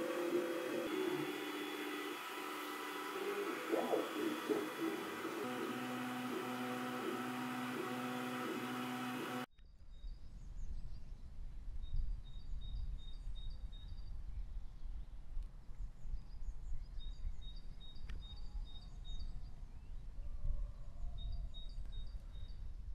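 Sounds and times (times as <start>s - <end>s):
printer fans and motors whirring: 0.0s - 9.5s.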